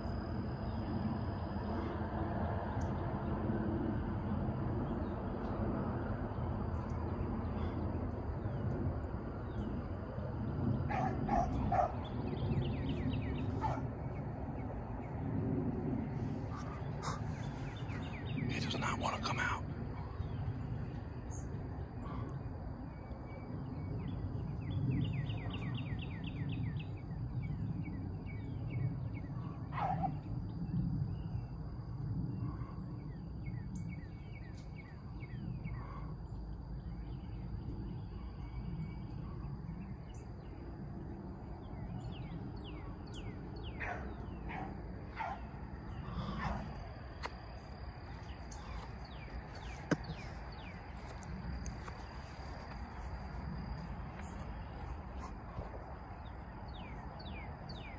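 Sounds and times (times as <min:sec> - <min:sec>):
low rumble: 0:00.0 - 0:25.6
high insect drone: 0:00.0 - 0:57.9
bird chirping: 0:10.9 - 0:15.2, 0:16.1 - 0:21.5, 0:47.6 - 0:53.1, 0:54.1 - 0:57.9
short falling bird calls: 0:16.5 - 0:20.2.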